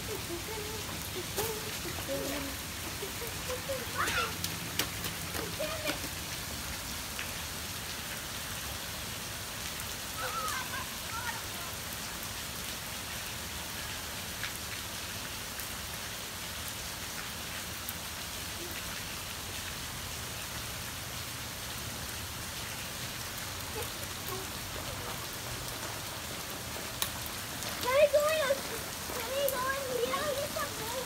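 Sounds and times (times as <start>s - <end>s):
rain falling on pavement: 0.0s - 31.0s
water drips ticking: 0.1s - 7.4s, 22.6s - 31.0s.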